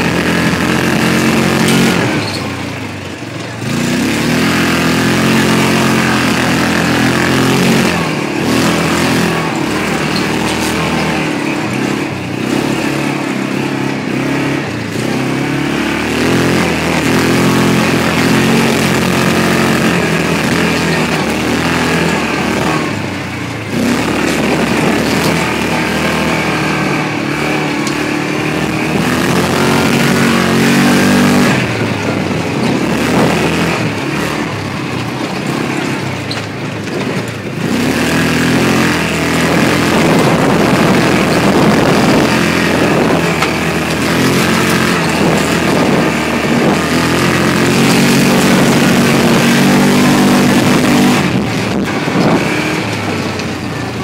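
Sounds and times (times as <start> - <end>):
off-road vehicle engine revving: 0.0 - 54.0.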